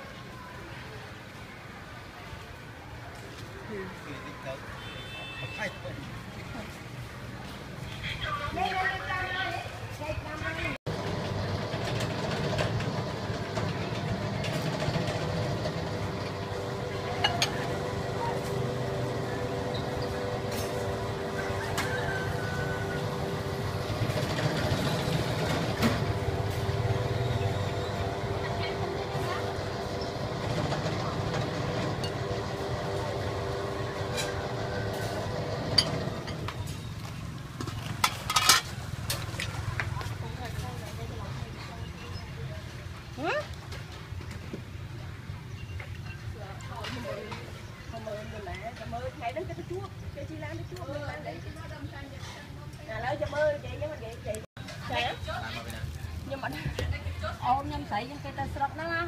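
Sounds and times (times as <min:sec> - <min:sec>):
low mechanical rumble: 0:10.9 - 0:36.6.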